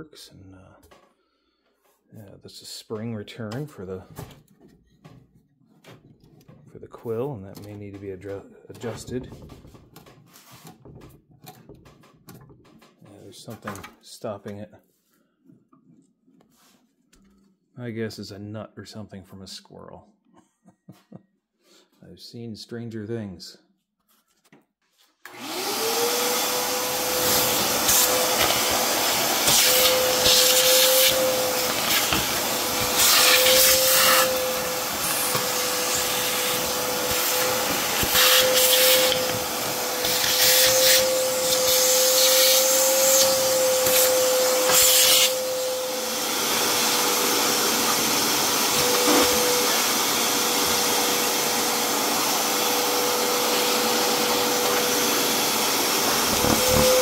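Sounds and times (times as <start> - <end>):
shop vacuum running: 25.3 - 57.0.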